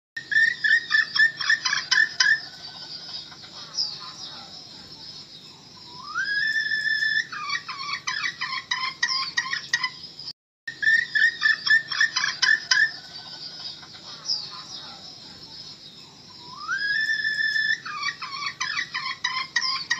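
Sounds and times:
junglefowl hen clucking: 0.6 - 4.6, 7.2 - 10.0, 10.8 - 15.0, 17.7 - 19.9.

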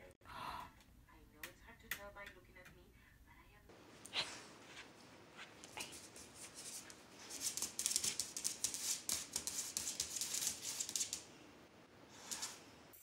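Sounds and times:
dog claws clicking on concrete: 7.3 - 11.3.

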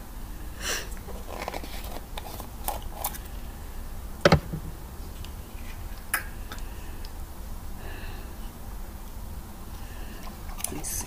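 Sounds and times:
sharp knock: 4.3 - 4.7.

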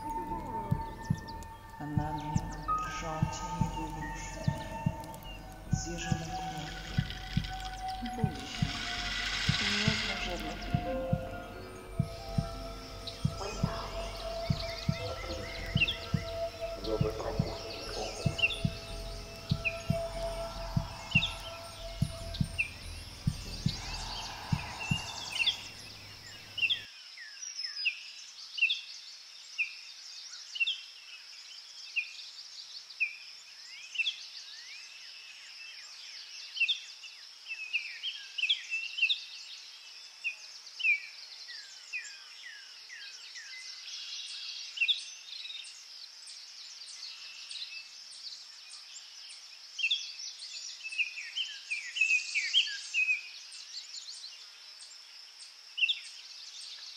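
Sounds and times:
low rumble: 0.0 - 26.6
high insect drone: 0.0 - 26.8
downward-sliding bird chirps: 6.3 - 26.5.

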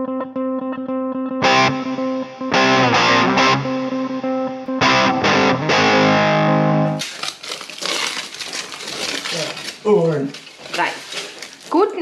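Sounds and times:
distorted electric guitar chords: 0.0 - 7.0.

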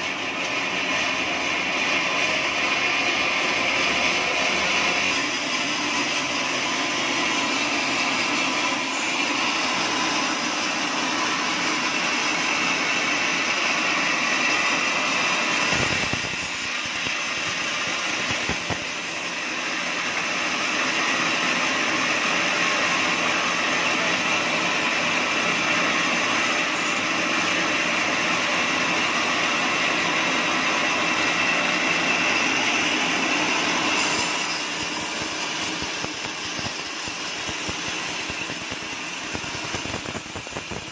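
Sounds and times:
band saw machine whine: 0.0 - 40.9
saw blade rasping through wood: 30.8 - 39.2.

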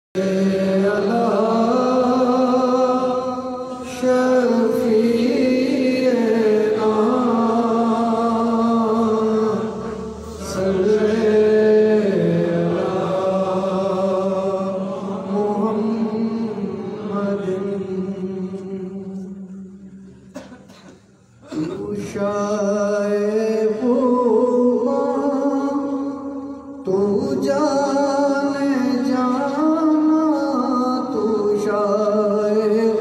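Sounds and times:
singers chanting held notes: 0.2 - 18.4.

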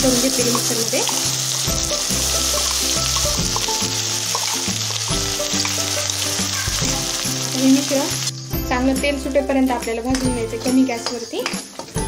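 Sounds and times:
hot oil sizzling: 0.0 - 8.7
background music: 0.0 - 12.0.

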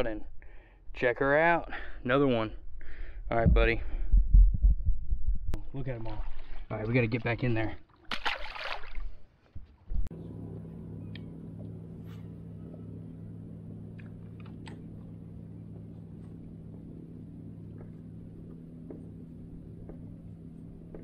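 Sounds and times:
boat motor humming: 10.0 - 21.0.

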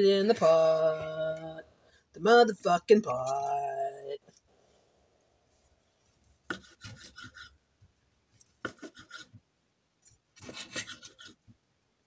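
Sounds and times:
knife sawing through sausage: 6.5 - 7.5, 8.6 - 9.3, 10.4 - 11.4.

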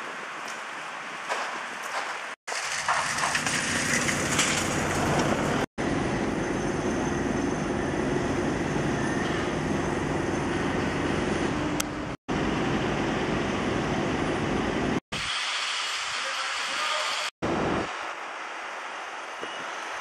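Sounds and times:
city street traffic rumble and hiss: 0.0 - 20.0.

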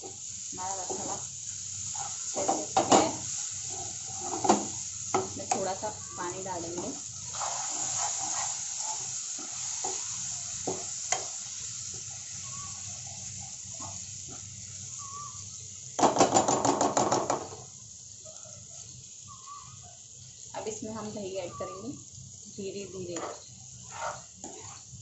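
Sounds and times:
spices sizzling in oil: 0.0 - 25.0
metal ladle stirring in pan: 7.3 - 11.3, 23.1 - 25.0.

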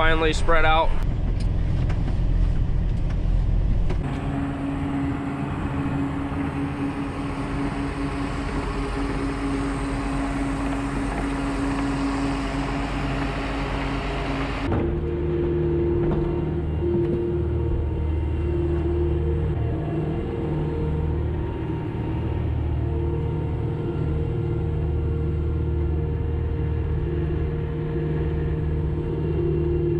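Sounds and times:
steady hum: 0.0 - 29.9
steady machine whine: 0.0 - 29.9
feed mixer wagon running: 4.0 - 14.7.

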